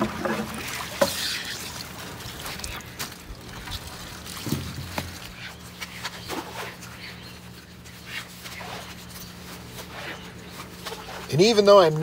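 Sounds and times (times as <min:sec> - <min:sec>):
water dripping: 0:00.0 - 0:05.4.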